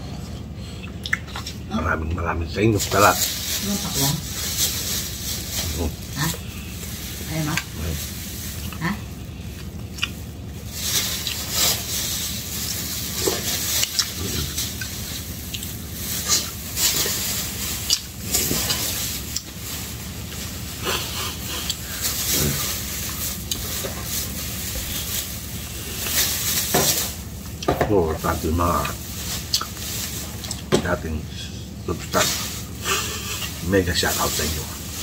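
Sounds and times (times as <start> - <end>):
chewing: 0.4 - 1.6, 4.4 - 26.4, 28.8 - 30.7.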